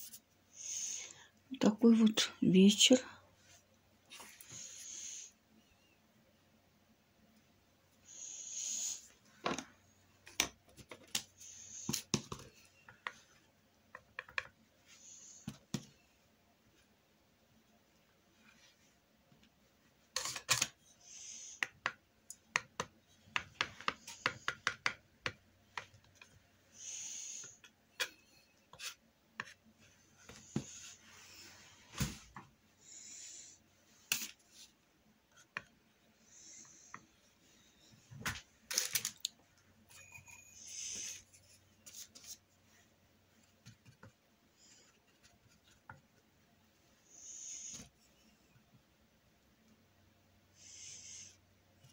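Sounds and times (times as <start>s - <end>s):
paintbrush strokes: 39.9s - 43.5s.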